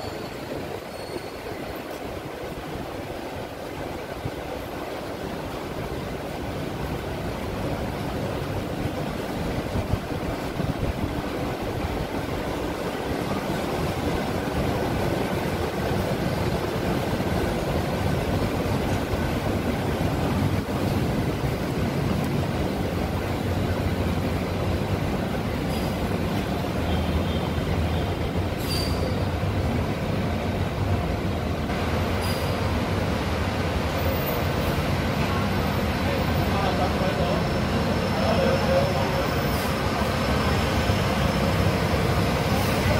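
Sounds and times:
short high squeak: 0.0s - 1.7s, 28.6s - 29.2s
bus engine hum: 0.0s - 42.9s
city traffic rumble: 0.0s - 42.9s.

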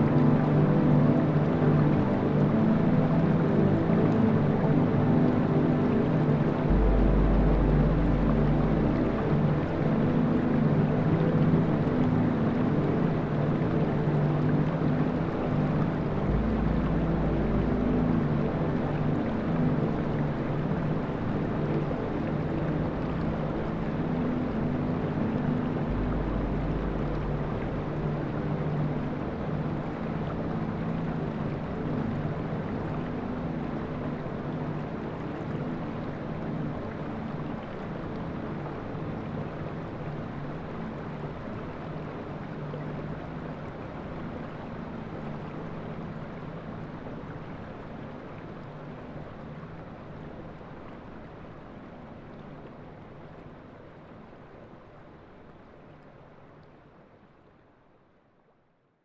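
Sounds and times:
held low tones: 6.7s - 9.3s.

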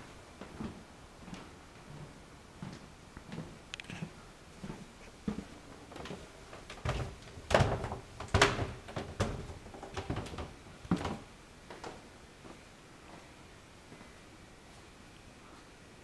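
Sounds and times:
footsteps on stairs and hard floor: 0.4s - 3.6s, 4.6s - 13.3s.

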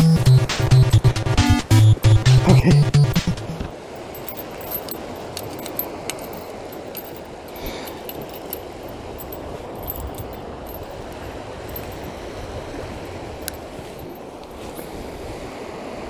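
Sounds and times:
river flowing over rocks: 2.4s - 14.9s.

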